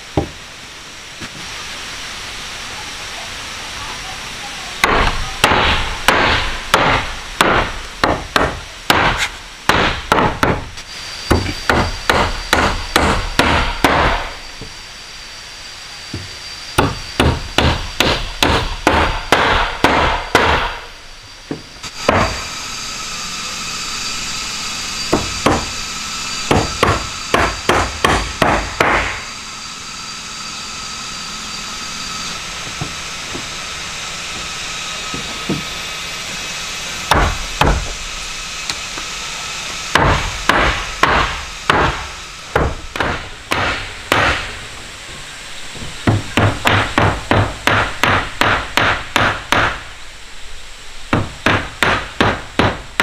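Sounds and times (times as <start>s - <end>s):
hammer driving nails into wood: 4.8s - 10.7s, 11.3s - 14.2s, 16.8s - 20.8s, 26.5s - 29.2s, 39.9s - 44.5s, 46.1s - 49.8s.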